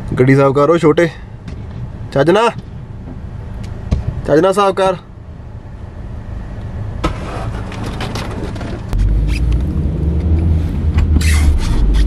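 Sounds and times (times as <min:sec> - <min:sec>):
brush scraping snow off windshield: 0:07.0 - 0:08.9
car driving rumble from cabin: 0:08.7 - 0:12.0.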